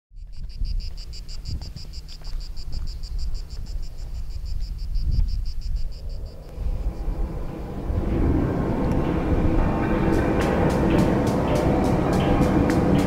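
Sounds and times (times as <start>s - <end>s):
insect chirping: 0.1s - 8.0s
low rumble: 0.6s - 13.0s.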